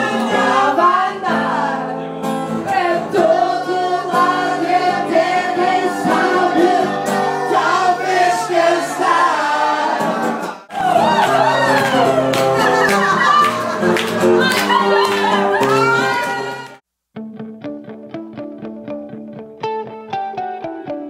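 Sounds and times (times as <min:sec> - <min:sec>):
several voices singing: 0:00.0 - 0:11.8.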